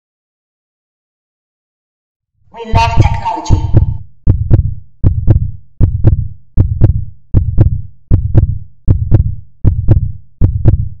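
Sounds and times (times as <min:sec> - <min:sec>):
heartbeat double thump: 0:02.8 - 0:11.0.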